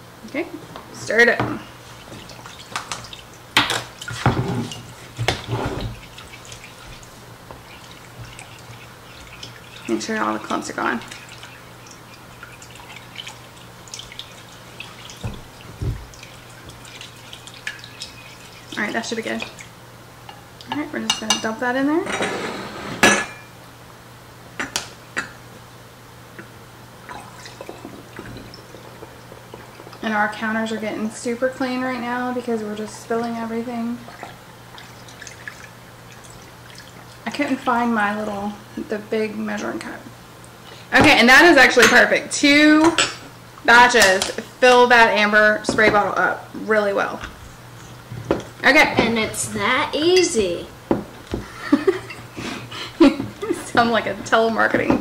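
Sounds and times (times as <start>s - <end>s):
liquid splashing and sloshing: 1.5s - 19.8s, 27.0s - 30.8s, 33.9s - 37.5s
glass scraping on counter: 4.2s - 5.9s, 22.0s - 23.4s
glassware clinking: 23.0s - 23.5s.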